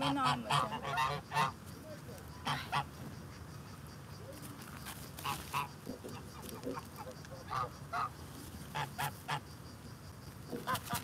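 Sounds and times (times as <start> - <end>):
geese honking: 0.0 - 1.6, 2.4 - 3.0, 5.2 - 9.4.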